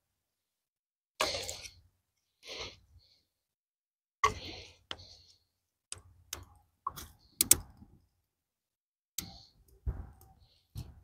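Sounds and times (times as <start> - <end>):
dry sticks clicking and knocking: 5.9 - 7.9.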